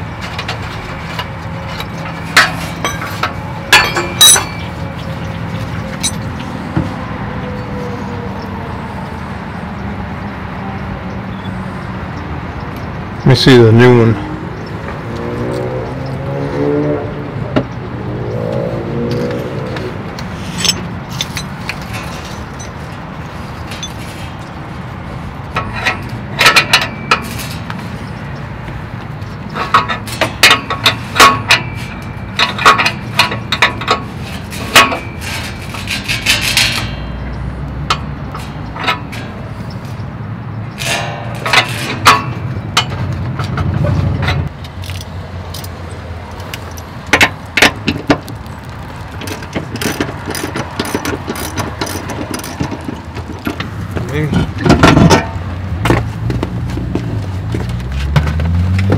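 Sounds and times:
metal hand tools clinking: 0:01.7 - 0:04.9, 0:05.9 - 0:06.3, 0:20.5 - 0:22.8.

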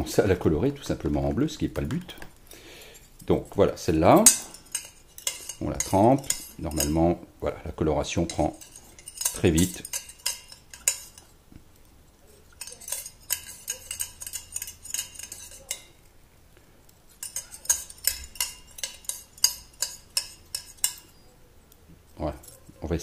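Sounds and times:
wire rattling against saucepan: 0:02.9 - 0:16.1, 0:17.1 - 0:21.2, 0:22.2 - 0:23.0.

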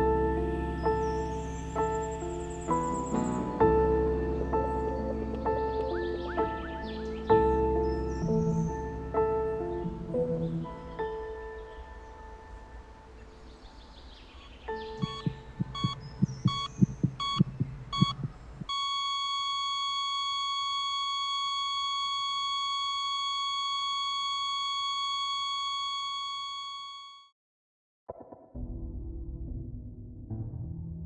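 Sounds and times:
heartbeat thumping: 0:15.0 - 0:18.7
heart monitor beeping: 0:15.0 - 0:27.2
heart monitor flatline tone: 0:15.0 - 0:27.3.

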